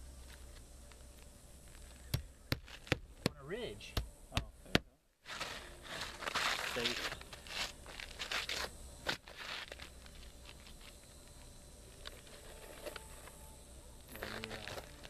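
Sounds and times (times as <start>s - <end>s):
shingles scraping: 5.3s - 10.8s.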